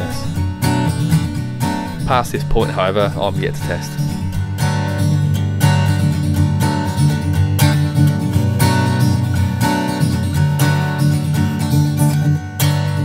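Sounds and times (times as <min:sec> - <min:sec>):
acoustic guitar strumming chords: 0:00.0 - 0:13.0.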